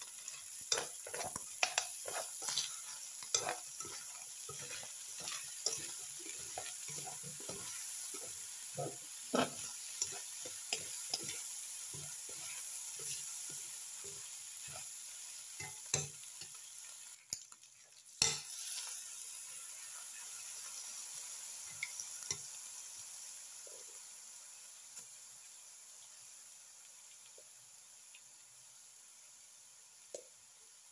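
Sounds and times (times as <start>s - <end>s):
spatula scraping and tapping pan: 0.0s - 16.6s
meat and onions sizzling: 0.0s - 30.9s.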